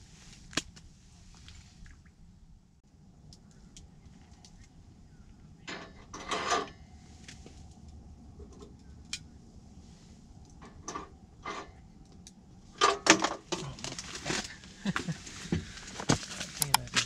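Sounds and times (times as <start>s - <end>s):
crinkling rustles: 12.7s - 17.0s
light clicks: 16.6s - 17.0s.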